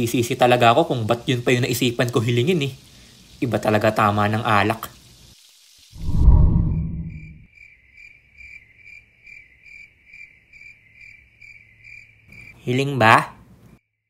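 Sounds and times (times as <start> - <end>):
cricket chirping: 0.0 - 13.2
deep low rumble: 6.0 - 7.5.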